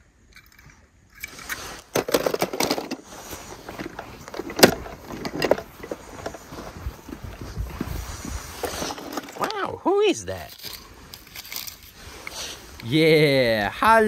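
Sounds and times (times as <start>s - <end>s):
hand rustling and small clicks: 10.4s - 12.9s.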